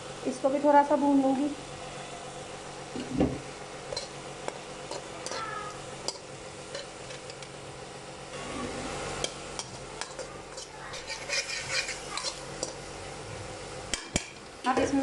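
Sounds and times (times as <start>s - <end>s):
chicken sizzling in a pan: 0.0s - 15.0s
spatula scraping a pan: 10.0s - 12.8s.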